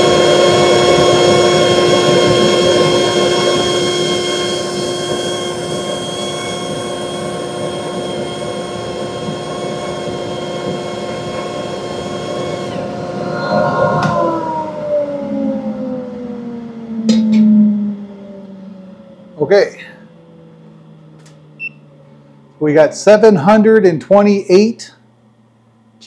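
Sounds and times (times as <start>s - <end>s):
air rushing into inlet: 0.0s - 18.4s
dust collector motor whine: 0.0s - 26.0s.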